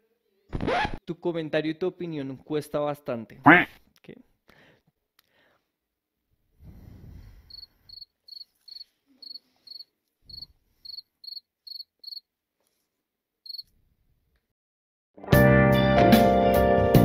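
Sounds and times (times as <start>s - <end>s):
cricket chirping: 7.5s - 12.2s.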